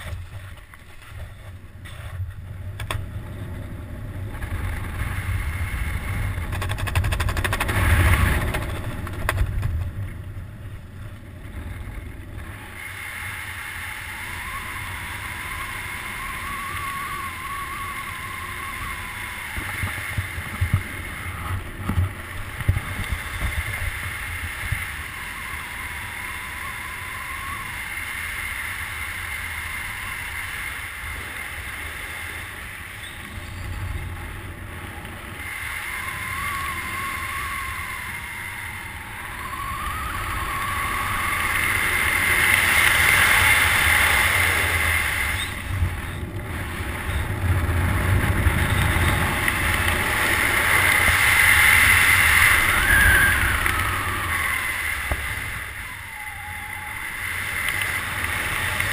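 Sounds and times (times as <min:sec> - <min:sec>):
wind buffeting microphone: 0:00.0 - 0:58.9
faint whistle: 0:13.5 - 0:20.0, 0:24.7 - 0:30.4, 0:35.4 - 0:43.6, 0:45.2 - 0:46.2, 0:51.4 - 0:58.0.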